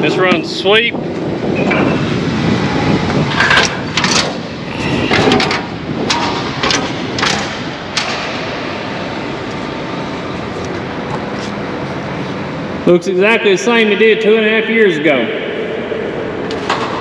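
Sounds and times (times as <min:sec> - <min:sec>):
steady background noise: 0:00.0 - 0:17.0.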